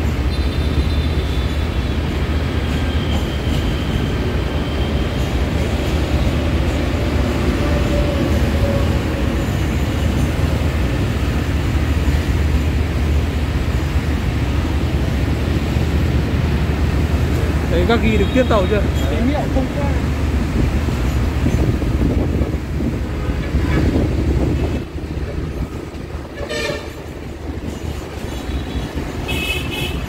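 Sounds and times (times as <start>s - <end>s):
locomotive engine droning: 0.0s - 30.0s
rail running noise: 0.0s - 30.0s.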